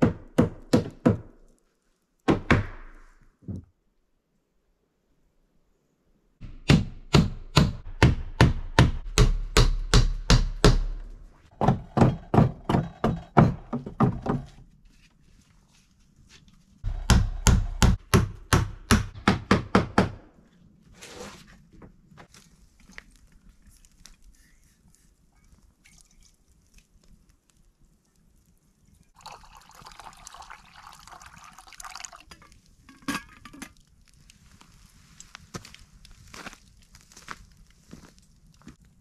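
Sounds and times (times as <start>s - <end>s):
hammer striking wood: 0.0s - 1.4s, 2.3s - 3.0s, 6.4s - 14.6s, 16.9s - 20.3s.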